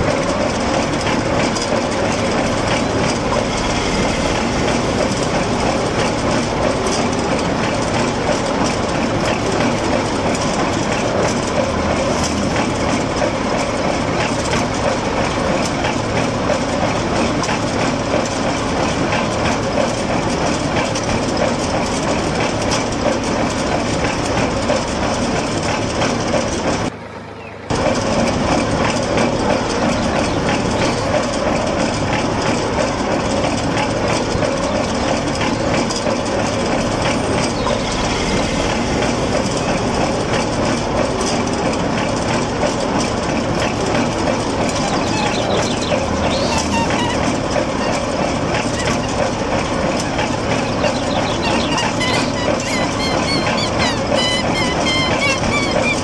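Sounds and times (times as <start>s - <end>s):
small electric motor rattling: 43.5s - 56.0s.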